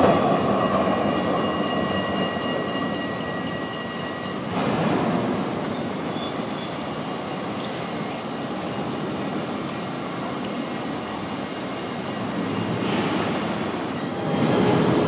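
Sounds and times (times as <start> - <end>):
tram wheels rumbling on rails: 0.0 - 15.0
rising tram motor whine: 10.5 - 15.0.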